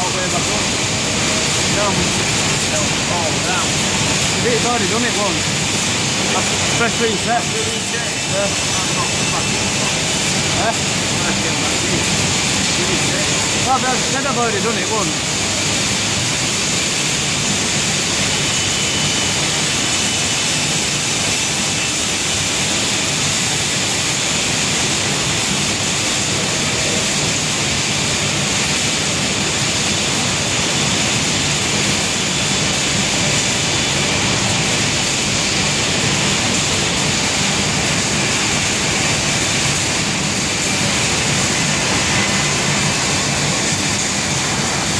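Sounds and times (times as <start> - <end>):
extraction fan air rushing: 0.0 - 18.3.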